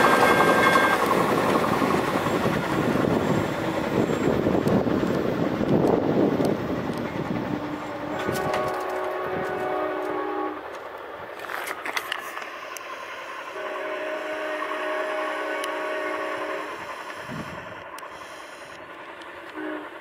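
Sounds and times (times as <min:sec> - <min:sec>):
low train rumble: 0:00.0 - 0:20.0
locomotive air horn chord: 0:07.6 - 0:10.7, 0:13.5 - 0:18.7, 0:19.5 - 0:20.0.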